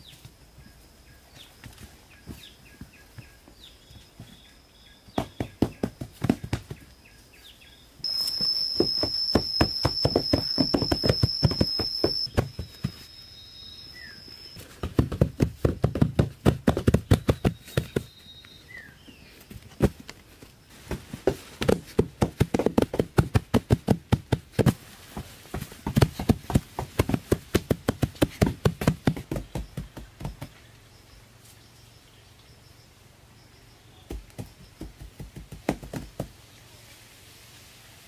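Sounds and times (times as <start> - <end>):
dull thumps tamping sod: 5.1 - 6.9, 8.1 - 13.1, 14.6 - 18.2, 19.4 - 30.6, 34.1 - 36.4
high steady whine: 8.0 - 14.9.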